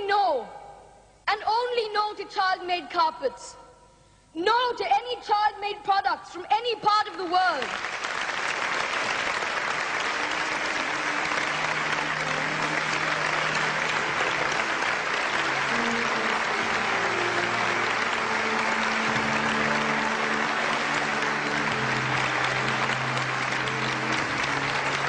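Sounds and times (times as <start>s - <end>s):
audience applauding: 7.6s - 25.0s
soft background music: 9.9s - 25.0s.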